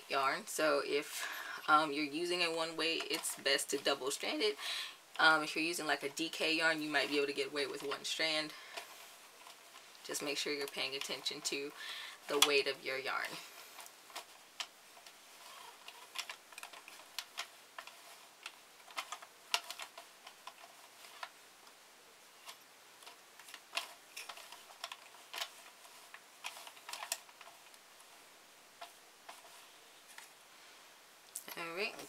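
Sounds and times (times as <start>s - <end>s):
knitting machine plastic clicking: 13.8s - 21.8s, 22.4s - 27.8s.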